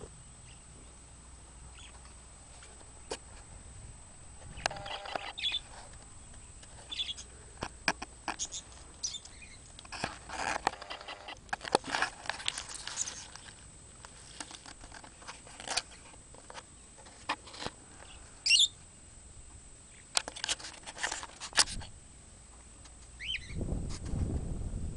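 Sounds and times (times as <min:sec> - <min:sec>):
budgerigars chattering: 0:01.7 - 0:02.0, 0:04.6 - 0:05.7, 0:06.4 - 0:07.3, 0:08.3 - 0:09.6, 0:18.0 - 0:18.8, 0:23.2 - 0:23.6
loud warbling chirp: 0:04.5 - 0:07.3, 0:08.4 - 0:09.6, 0:18.4 - 0:18.8, 0:23.2 - 0:23.6.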